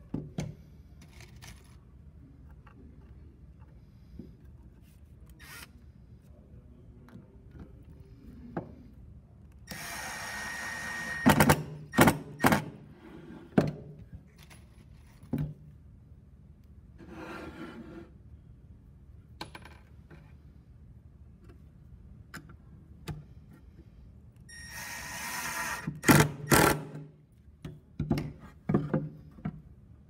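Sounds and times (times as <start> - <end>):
board scraping on bench: 17.0 - 18.2.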